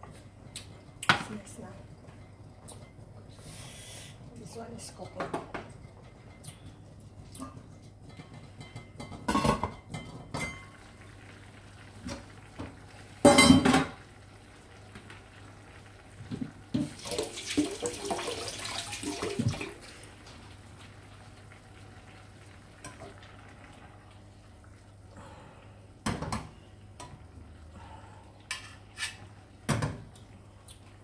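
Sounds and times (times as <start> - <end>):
pots clattering and scraping: 4.8 - 10.8, 28.5 - 30.0
pots and lids clanking: 7.4 - 10.8, 13.2 - 14.0.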